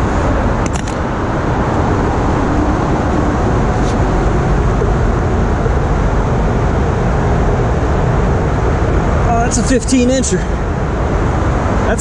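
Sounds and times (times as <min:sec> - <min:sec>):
low outdoor rumble and rush: 0:00.0 - 0:12.0.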